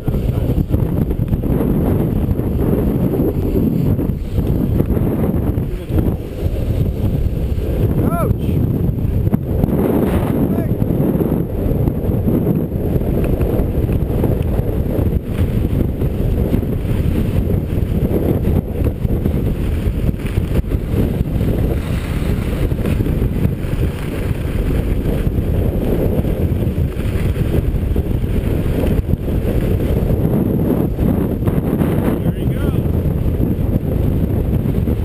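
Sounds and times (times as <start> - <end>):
skis sliding over snow: 0.0 - 8.6, 12.4 - 31.4
wind rushing over microphone: 0.0 - 35.0.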